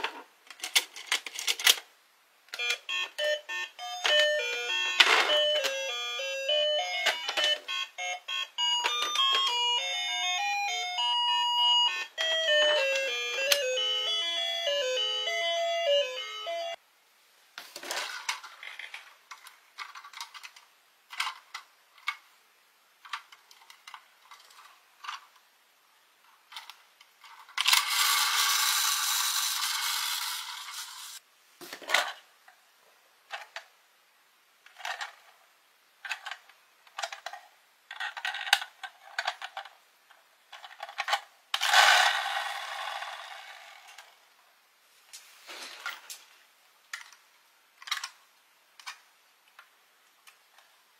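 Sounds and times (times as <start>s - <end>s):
toy buses clicking and rattling: 0.5s - 1.9s, 2.5s - 10.0s, 17.8s - 22.3s, 23.0s - 25.4s, 26.4s - 31.2s, 34.6s - 35.4s, 36.0s - 44.1s, 47.8s - 48.2s, 48.8s - 49.0s
electronic toy tune: 2.6s - 16.8s
toy wheels whirring: 27.4s - 31.2s, 41.6s - 44.2s.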